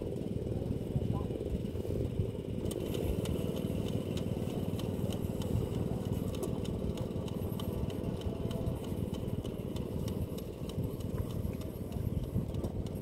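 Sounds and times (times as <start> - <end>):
small engine running: 0.0 - 13.0
light ticking: 2.6 - 13.0.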